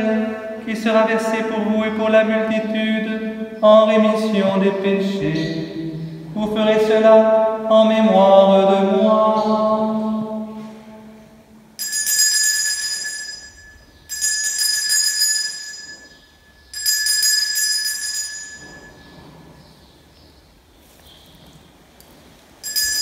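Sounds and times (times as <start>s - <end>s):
altar bell ringing: 11.8s - 19.2s, 22.6s - 23.0s.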